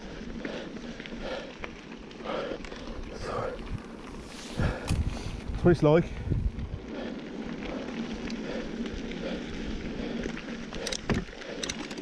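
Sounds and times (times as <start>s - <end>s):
bike tyres crunching on dirt trail: 0.0s - 12.0s
bike rattling knocks: 10.8s - 12.0s.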